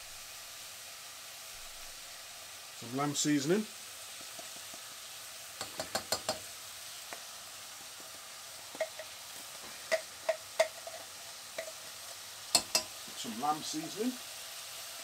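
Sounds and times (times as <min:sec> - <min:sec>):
mince sizzling in a pan: 0:00.0 - 0:15.0
seasoning shaker clicks: 0:05.6 - 0:06.5, 0:08.7 - 0:09.2, 0:09.9 - 0:13.0.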